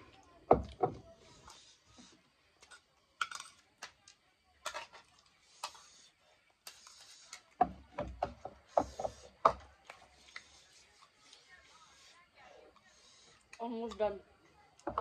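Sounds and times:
people slurping noodles: 5.2 - 7.6.

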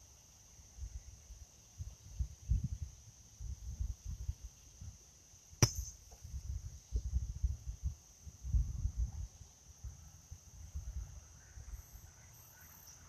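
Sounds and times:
faint high insect drone: 0.0 - 13.0
sharp click: 5.6 - 6.1.

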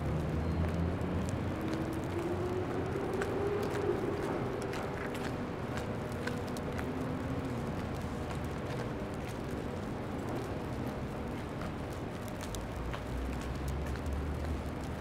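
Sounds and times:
city street noise: 0.0 - 15.0
faint ticks: 4.6 - 15.0.

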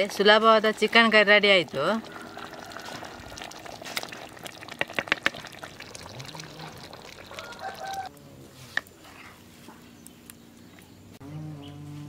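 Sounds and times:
thick curry sloshing: 1.7 - 8.1.

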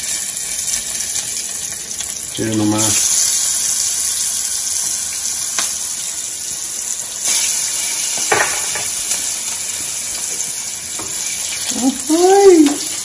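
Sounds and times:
shrimp sizzling in hot oil: 0.0 - 13.0.

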